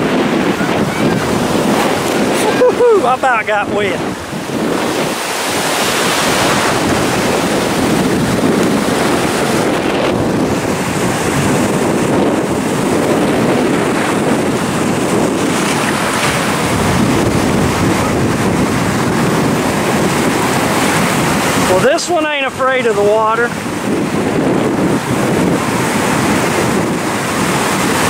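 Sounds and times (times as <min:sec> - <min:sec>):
ocean surf rushing: 0:00.0 - 0:28.0
wind buffeting microphone: 0:00.0 - 0:28.0.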